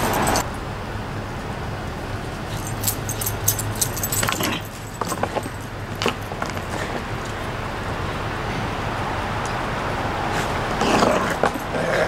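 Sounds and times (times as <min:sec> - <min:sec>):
dog collar tags jingling: 0:00.0 - 0:00.4, 0:02.4 - 0:06.8.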